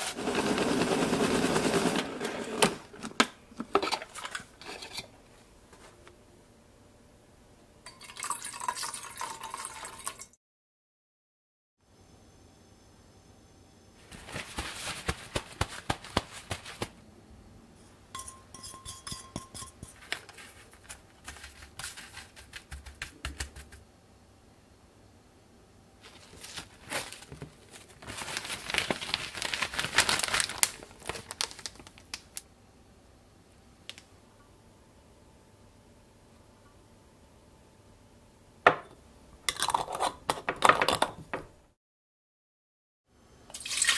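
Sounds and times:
plastic packaging crinkling: 0:14.1 - 0:16.9, 0:26.0 - 0:32.4.

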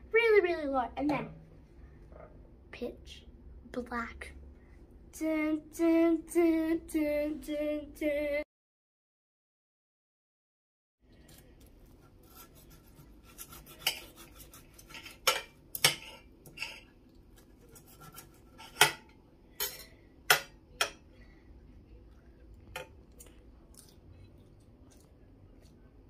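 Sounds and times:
knife and fork scraping plate: 0:12.2 - 0:19.0.

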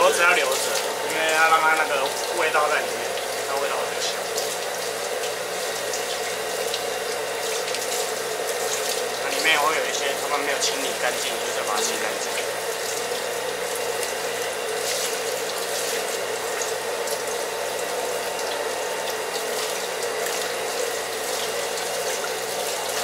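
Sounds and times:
water sloshing and splashing: 0:04.1 - 0:09.5.

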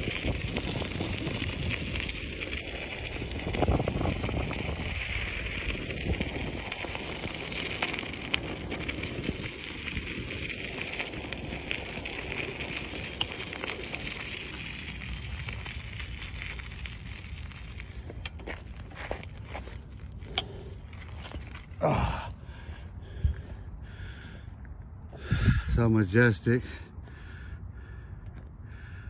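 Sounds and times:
bicycle tyres crunching on gravel: 0:00.0 - 0:25.4
wind rumbling on microphone: 0:00.0 - 0:26.0
stones clicking: 0:05.2 - 0:21.8.

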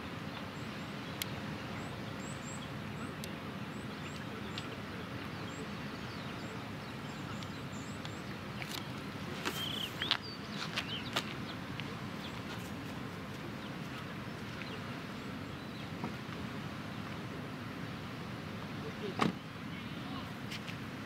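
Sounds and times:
high bird chirps: 0:09.5 - 0:11.2.

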